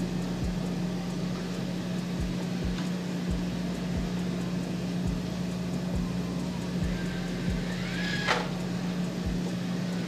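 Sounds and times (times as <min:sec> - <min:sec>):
soft low thumps: 0:00.0 - 0:00.8, 0:05.0 - 0:07.7
robot motor hum: 0:00.0 - 0:10.0.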